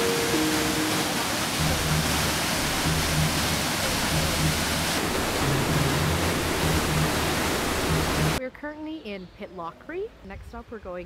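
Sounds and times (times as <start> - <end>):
waterfall rushing: 0.0 - 8.4
low bass background music: 0.4 - 8.4.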